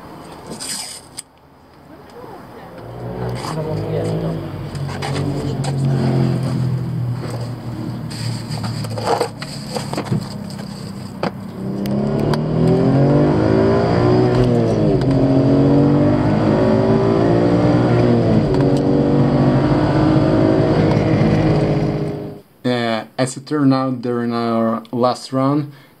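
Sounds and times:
car engine accelerating hard: 0:02.7 - 0:22.4
knocks and clatters: 0:06.5 - 0:11.5.

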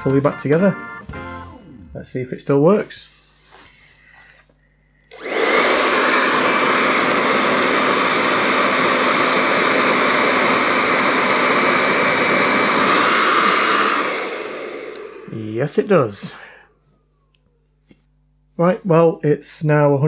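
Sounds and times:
hair dryer running: 0:05.0 - 0:17.5
hair dryer switch click: 0:14.7 - 0:15.2.

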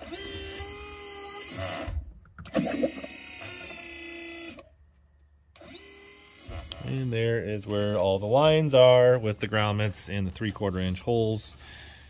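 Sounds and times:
hydraulic pump motor whining: 0:00.0 - 0:04.7, 0:05.6 - 0:07.7.

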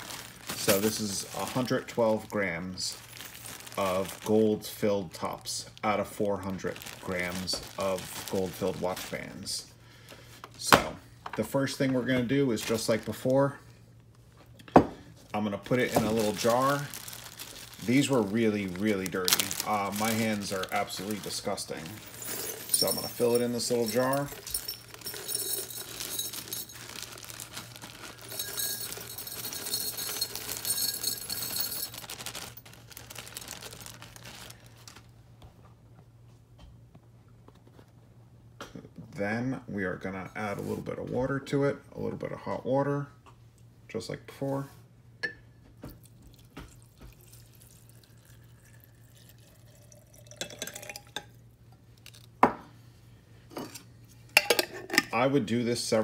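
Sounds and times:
plastic bag crinkling: 0:00.0 - 0:09.5, 0:12.4 - 0:13.5, 0:15.2 - 0:35.1
metal pieces clinking on glass: 0:21.8 - 0:32.7, 0:49.8 - 0:51.3
water trickling into glass jar: 0:46.2 - 0:51.3.

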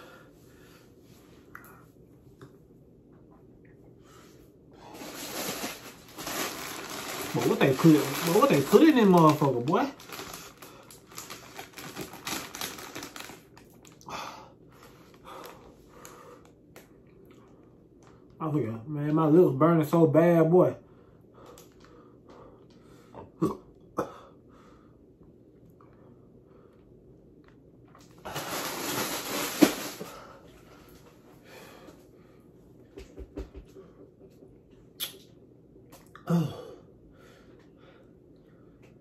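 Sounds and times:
plastic packet crinkling: 0:04.9 - 0:14.0, 0:28.3 - 0:30.1.

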